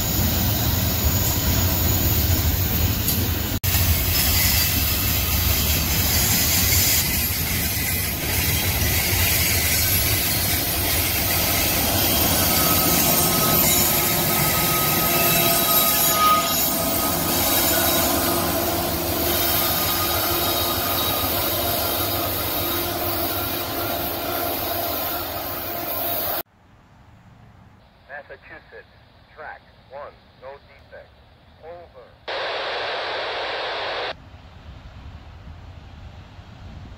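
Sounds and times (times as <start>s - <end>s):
diesel locomotive passing: 0.0s - 26.4s
train wheels rumbling on rails: 0.0s - 26.4s.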